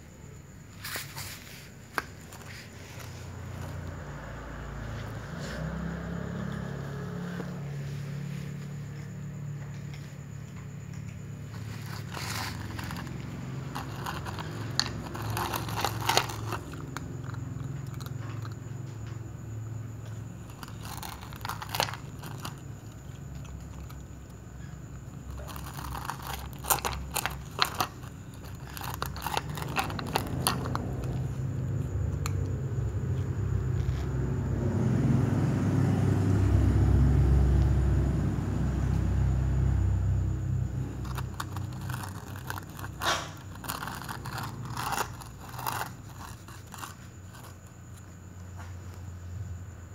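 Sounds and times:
cat crunching dry food: 11.0 - 18.8, 20.3 - 31.4, 40.8 - 47.6.

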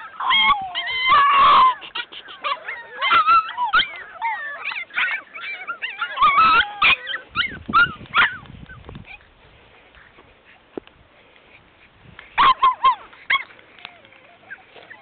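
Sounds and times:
puppies whining and yelping: 0.0 - 9.3, 12.3 - 15.0.

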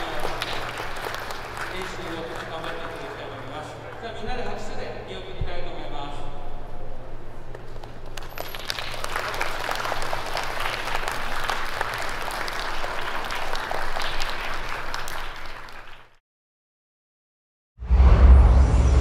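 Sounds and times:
children applauding: 0.0 - 4.0, 8.1 - 16.2.

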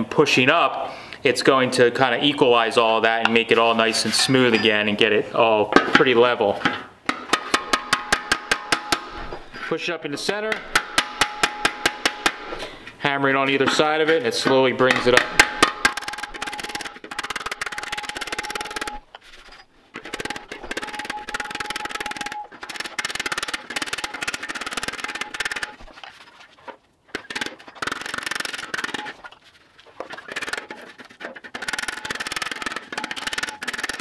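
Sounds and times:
sheet metal ringing: 10.4 - 12.5.

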